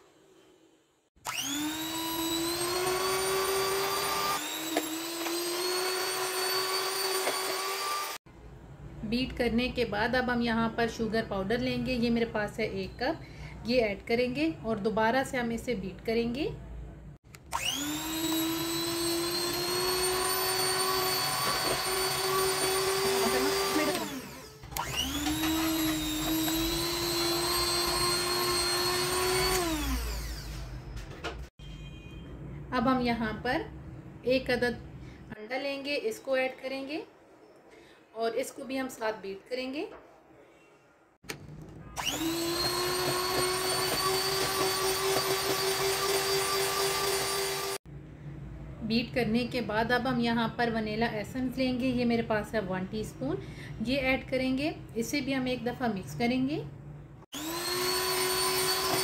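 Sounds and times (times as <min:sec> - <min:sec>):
electric hand mixer whirring: 0:01.2 - 0:08.2, 0:17.5 - 0:30.7, 0:42.0 - 0:47.8, 0:57.3 - 0:59.0.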